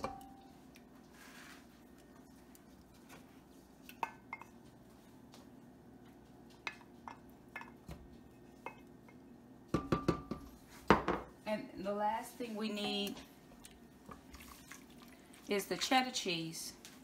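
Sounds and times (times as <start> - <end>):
spatula knocking against pot: 9.7 - 11.2.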